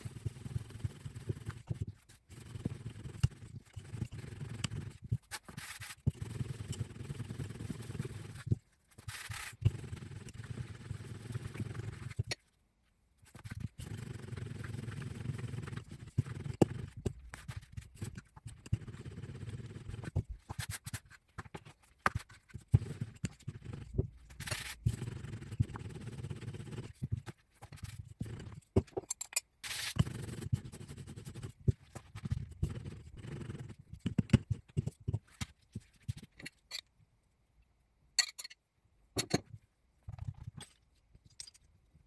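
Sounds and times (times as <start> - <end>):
rolling pin rolling over dough: 0.0 - 12.4, 13.3 - 29.0.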